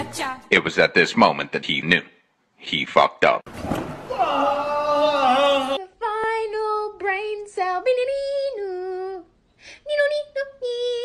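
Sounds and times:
high childlike voice singing: 5.3 - 9.3, 9.9 - 11.0.

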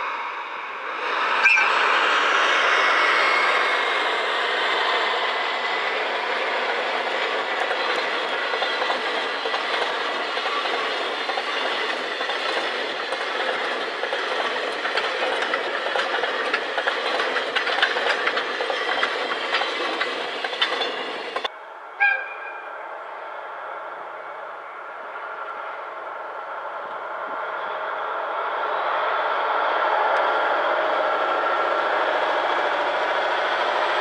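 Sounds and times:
freight train rumbling past: 0.0 - 34.0
wheels clicking over rail joints: 6.4 - 21.5.

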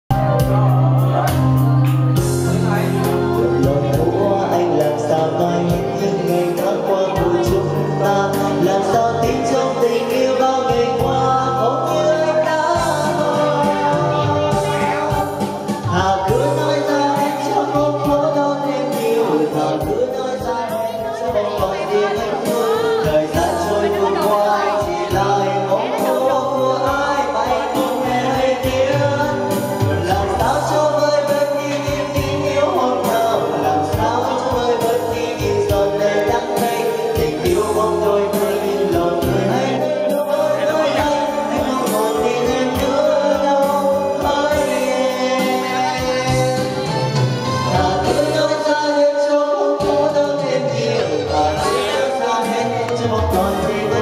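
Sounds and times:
backing track with steady beat: 0.1 - 54.0
person singing karaoke: 0.1 - 54.0.

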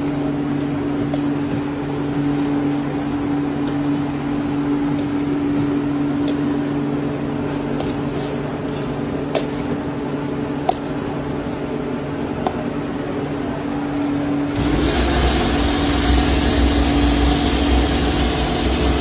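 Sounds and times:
press motor humming: 14.4 - 19.0.

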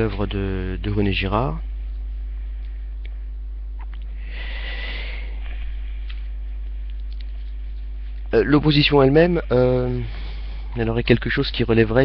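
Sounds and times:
electrical mains hum: 0.0 - 12.0
person sniffing: 4.2 - 5.8
faint clicks: 6.0 - 8.3.

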